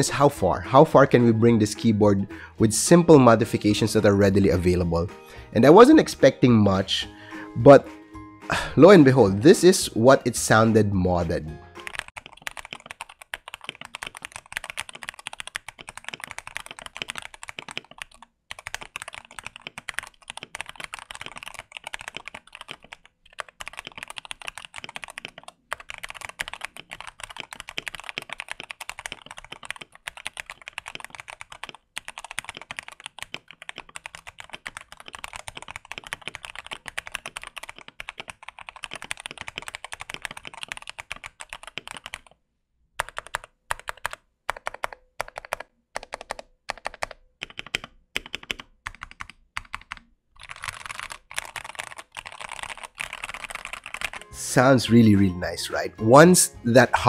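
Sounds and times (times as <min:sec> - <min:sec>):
mechanical keyboard typing: 0:11.8 - 0:42.4, 0:43.0 - 0:54.4.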